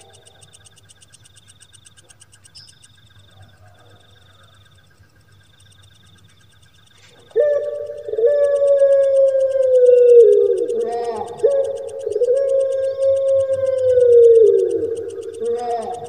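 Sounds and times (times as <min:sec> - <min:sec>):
dove cooing: 0:00.0 - 0:00.6, 0:03.2 - 0:04.6, 0:06.8 - 0:16.0
high-pitched insect chirping: 0:00.0 - 0:16.0.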